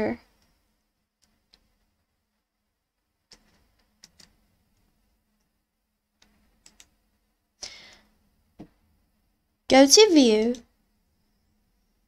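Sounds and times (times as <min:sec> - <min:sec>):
computer mouse clicks: 0:03.3 - 0:05.5, 0:06.2 - 0:07.0
short breath-like hiss: 0:07.6 - 0:08.1.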